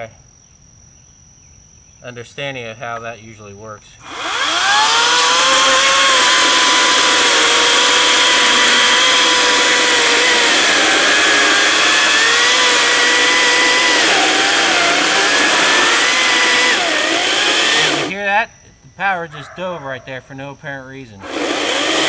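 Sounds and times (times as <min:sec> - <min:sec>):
chainsaw cutting a log: 0:04.0 - 0:18.2, 0:21.2 - 0:22.0.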